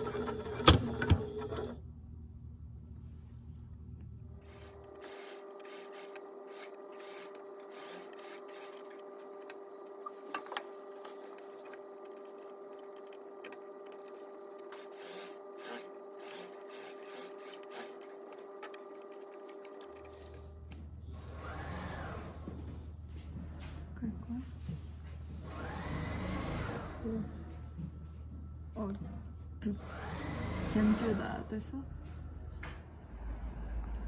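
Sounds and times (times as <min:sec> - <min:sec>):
sewing machine motor humming: 0:00.0 - 0:01.8, 0:04.4 - 0:22.5, 0:29.8 - 0:31.4.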